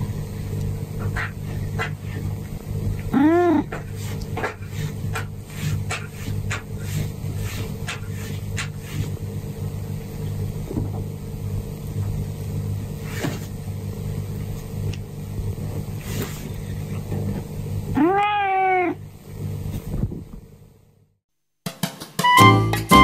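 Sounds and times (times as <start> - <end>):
low steady hum: 0.0 - 21.1
cat meowing: 18.0 - 19.0.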